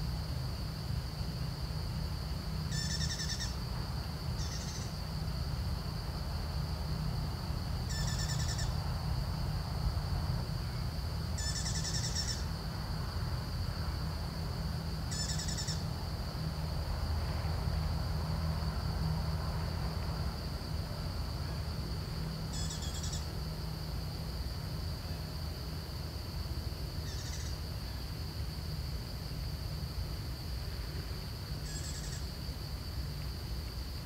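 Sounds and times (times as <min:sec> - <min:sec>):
bird trilled calls: 0:02.7 - 0:03.6, 0:04.4 - 0:04.9, 0:07.9 - 0:08.7, 0:11.4 - 0:12.4, 0:27.1 - 0:27.5.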